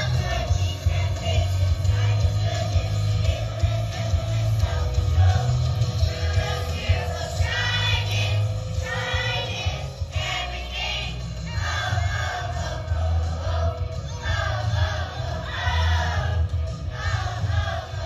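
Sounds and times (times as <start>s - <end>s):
amplified accompaniment with bass: 0.0s - 18.0s
children's choir singing: 0.0s - 18.0s.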